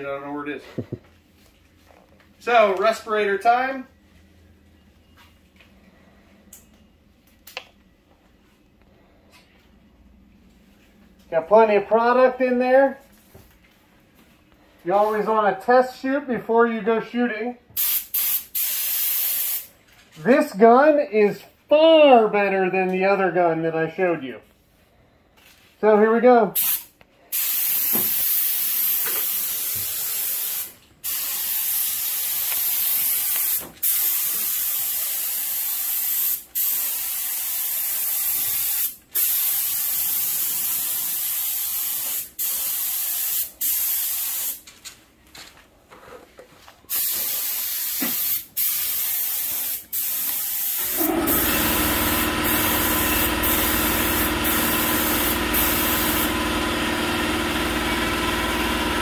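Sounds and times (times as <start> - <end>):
paint spray gun hissing: 17.8 - 19.7, 26.6 - 44.6, 46.9 - 59.0
air compressor humming: 47.0 - 59.0.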